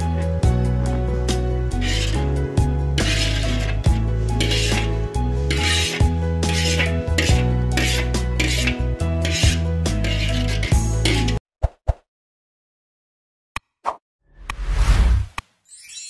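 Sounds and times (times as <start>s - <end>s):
background music with bass line: 0.0s - 11.4s.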